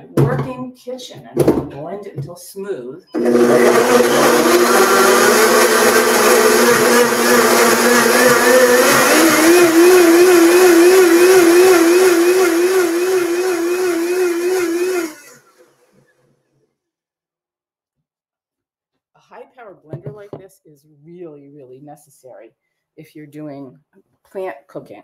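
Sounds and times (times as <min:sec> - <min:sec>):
blender running: 0:03.2 - 0:16.0.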